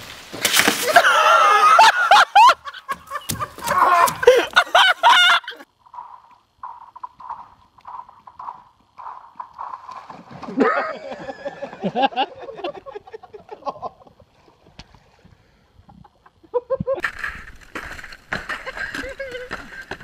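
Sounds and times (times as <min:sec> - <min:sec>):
people yelling and shrieking: 0:00.8 - 0:02.6, 0:03.4 - 0:05.6.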